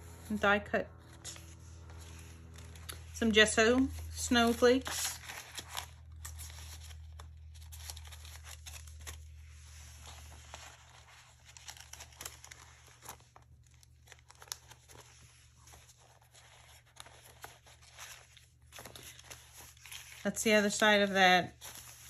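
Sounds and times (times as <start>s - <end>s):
paper rustling and sliding: 1.0s - 22.0s.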